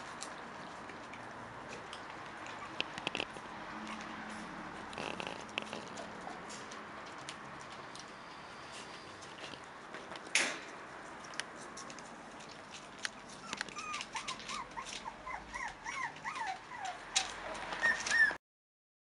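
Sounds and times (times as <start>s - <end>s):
puppy whimpering: 2.5s - 3.3s, 13.3s - 18.4s.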